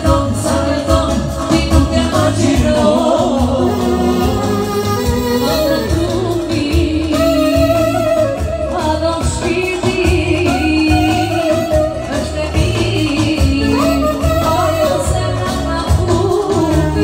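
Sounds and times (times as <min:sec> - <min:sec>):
low drum beat: 0:00.0 - 0:17.0
clarinet melody: 0:03.6 - 0:06.4, 0:07.1 - 0:09.3, 0:10.4 - 0:12.6, 0:13.4 - 0:15.6.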